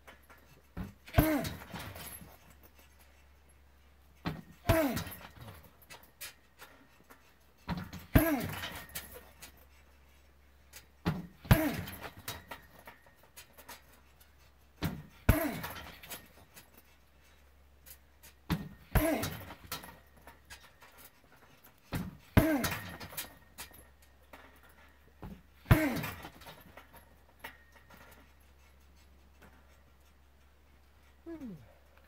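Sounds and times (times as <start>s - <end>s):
small clicks and rattles: 0.0s - 32.0s
kicks hitting punching bag: 0.8s - 2.3s, 4.2s - 5.6s, 7.7s - 8.7s, 11.0s - 12.3s, 14.8s - 16.1s, 18.5s - 19.8s, 21.9s - 23.1s, 25.2s - 26.4s.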